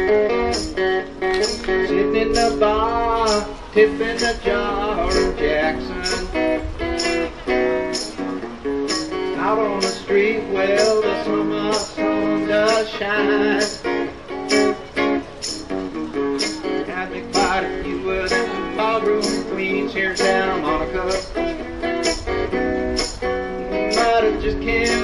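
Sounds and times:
acoustic guitar strumming: 0.0 - 25.0
man singing: 1.3 - 7.2, 9.1 - 14.8, 16.4 - 22.2, 23.7 - 25.0.

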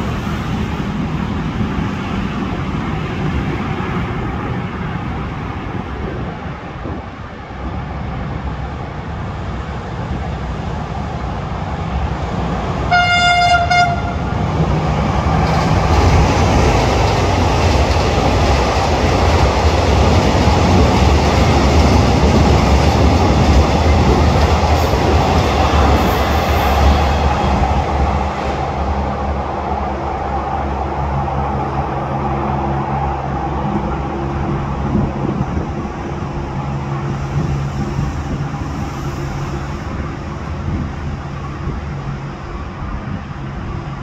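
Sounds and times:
train rumbling on rails: 0.0 - 44.0
train horn: 12.9 - 14.3.

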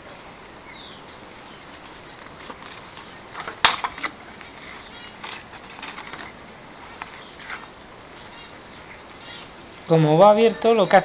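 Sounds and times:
paper crinkling and crackling: 1.8 - 7.8.

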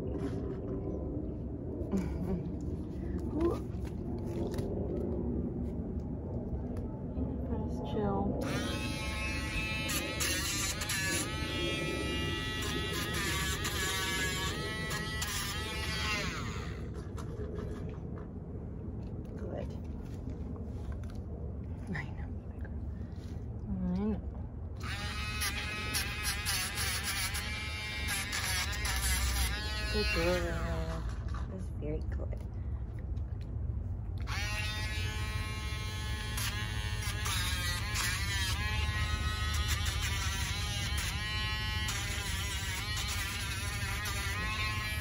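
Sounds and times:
rotary tool grinding nail: 8.4 - 16.8, 24.8 - 30.5, 34.3 - 45.0.

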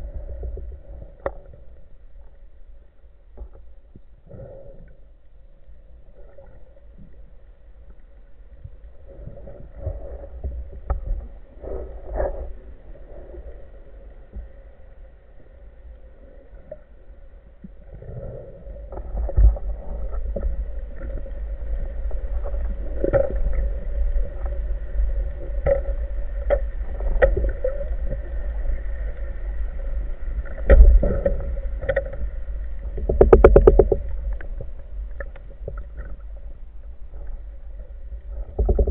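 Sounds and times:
faint steady hum: 0.0 - 38.9
underwater rumble: 0.0 - 38.9
knocks and clicks: 33.0 - 34.0.

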